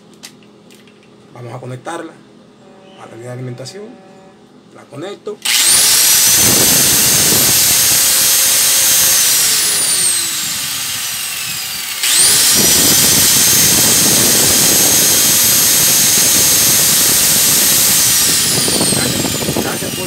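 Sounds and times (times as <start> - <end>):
angle grinder running: 5.4 - 20.0.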